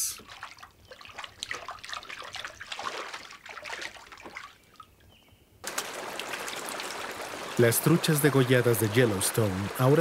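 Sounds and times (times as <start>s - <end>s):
animals splashing in water: 0.2s - 4.9s, 5.6s - 10.0s
stream rushing over rocks: 5.6s - 10.0s.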